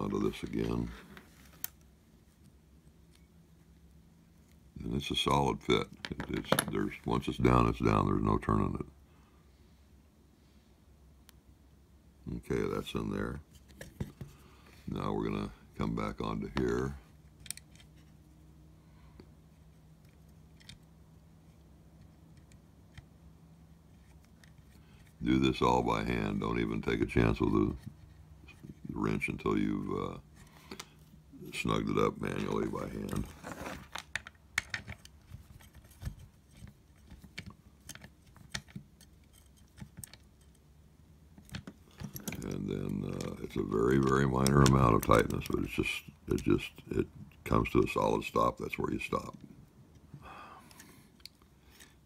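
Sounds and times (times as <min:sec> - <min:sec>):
steady low hum: 0:00.0 - 0:52.0.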